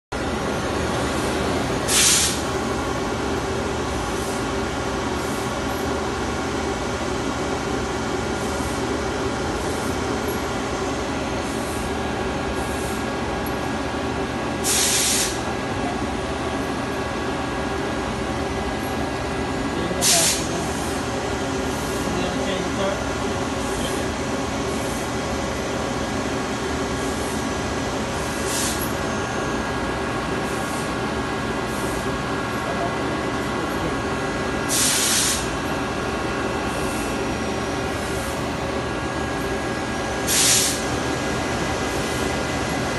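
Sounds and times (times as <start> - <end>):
lathe machine hum: 0.2 - 14.6, 15.5 - 42.9
short hisses: 1.9 - 2.4, 14.6 - 15.4, 20.0 - 20.5, 34.7 - 35.5, 40.3 - 40.8.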